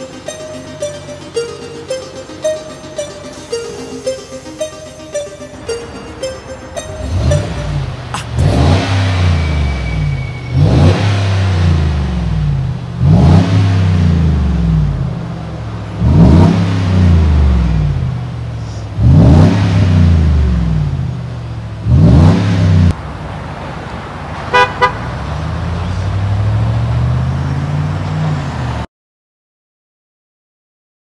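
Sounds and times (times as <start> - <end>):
truck engine revving: 0.0 - 28.9
horn toots: 2.4 - 12.3, 24.5 - 25.1.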